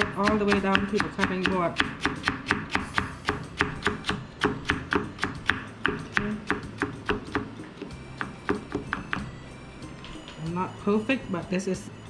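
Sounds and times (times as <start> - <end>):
knife chopping on wooden board: 0.0 - 9.3.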